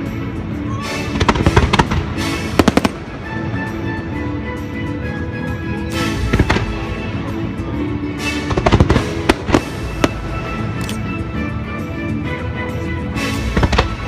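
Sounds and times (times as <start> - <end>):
steady music: 0.0 - 14.0
fireworks bangs and crackles: 1.0 - 3.8, 6.1 - 7.1, 8.2 - 10.7, 13.3 - 14.0.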